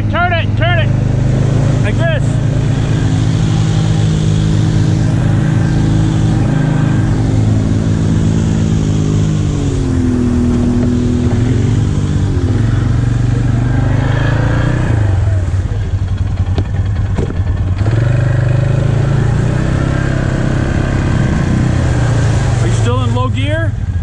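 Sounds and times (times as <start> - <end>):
atv engine running: 0.0 - 24.0.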